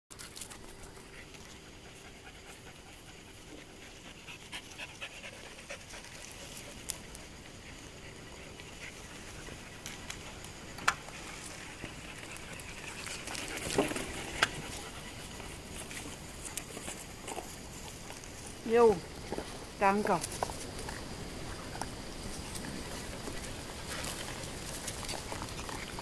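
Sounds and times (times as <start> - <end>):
dog panting: 0.5 - 10.5.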